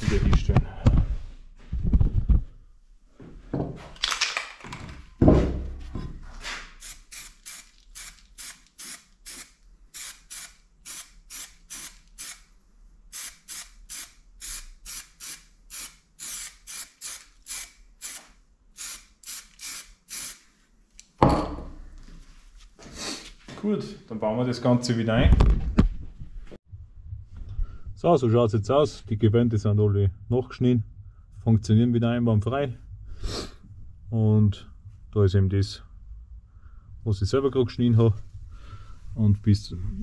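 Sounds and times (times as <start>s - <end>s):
thump: 5.2s - 6.1s, 21.2s - 21.8s.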